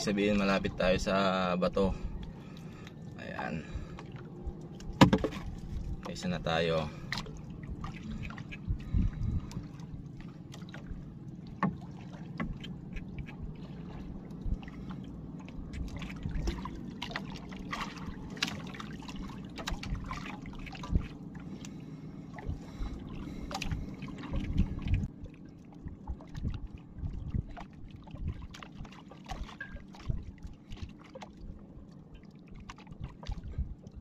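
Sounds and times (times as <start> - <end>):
water lapping against boat: 0.0 - 34.0
knocks on wooden hull: 5.0 - 5.5.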